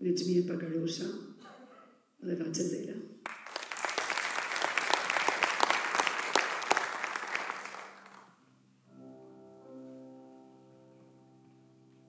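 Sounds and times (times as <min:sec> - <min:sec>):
audience applause: 0:03.2 - 0:08.3.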